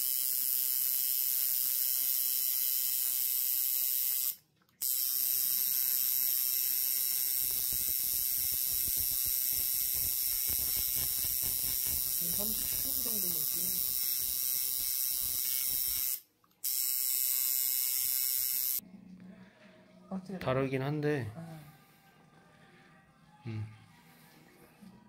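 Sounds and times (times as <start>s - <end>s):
tattoo machine buzzing: 0.0s - 18.8s.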